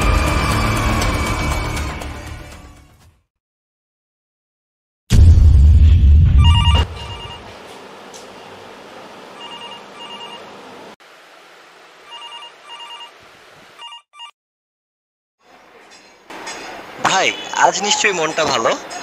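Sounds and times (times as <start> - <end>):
telephone ringing: 6.4 - 7.5, 9.3 - 10.7, 12.1 - 13.2, 13.8 - 14.4.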